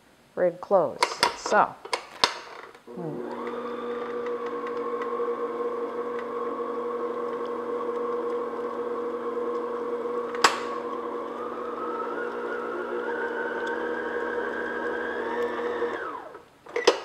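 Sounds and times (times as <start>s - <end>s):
stand mixer motor whining: 2.9s - 16.4s.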